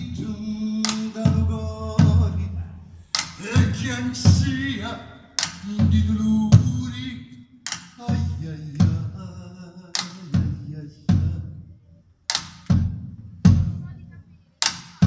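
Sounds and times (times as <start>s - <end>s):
deep drum strikes: 0.0s - 7.1s, 12.6s - 13.9s
faint singing voice: 0.0s - 12.1s.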